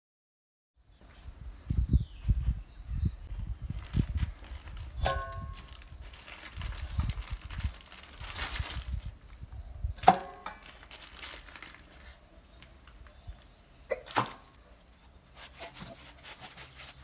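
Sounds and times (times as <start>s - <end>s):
plastic bags crinkling: 3.7s - 9.4s, 10.0s - 13.5s.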